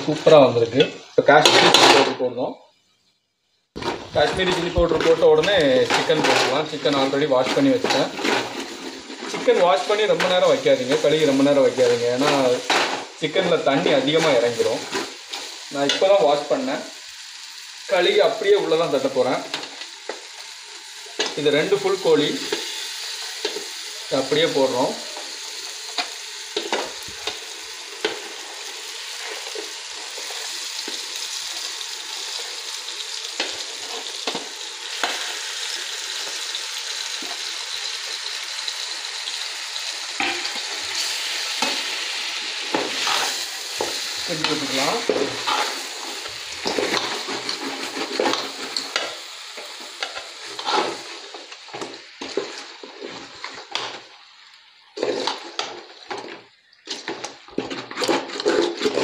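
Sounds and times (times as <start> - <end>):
chicken sizzling in hot oil: 3.7 - 59.0
spoon scraping metal pot: 56.9 - 59.0.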